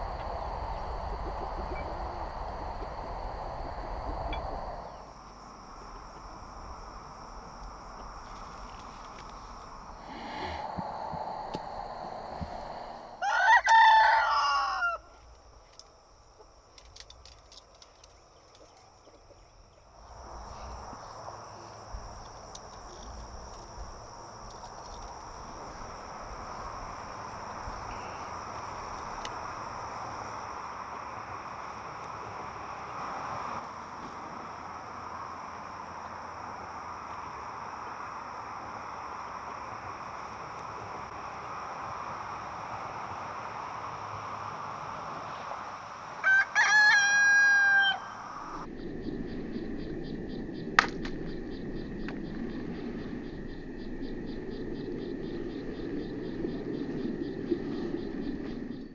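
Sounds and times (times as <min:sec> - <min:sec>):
high insect drone: 0:00.0 - 0:58.9
outdoor background hiss: 0:00.0 - 0:58.9
rooster crowing: 0:13.0 - 0:15.2, 0:46.2 - 0:48.6.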